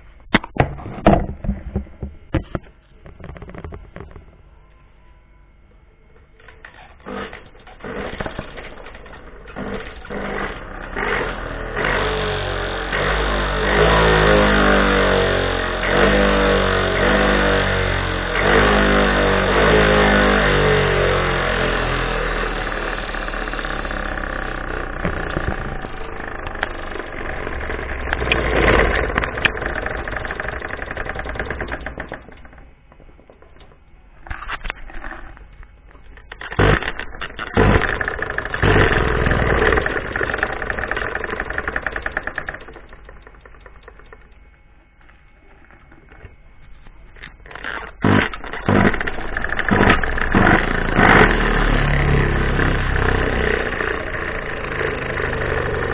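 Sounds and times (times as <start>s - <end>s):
blender motor whirring: 36.4s - 42.8s, 47.6s - 55.9s.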